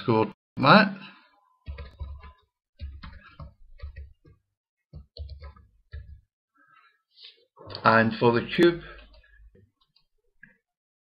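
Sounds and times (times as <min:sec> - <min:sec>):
keyboard typing: 0:01.6 - 0:06.3.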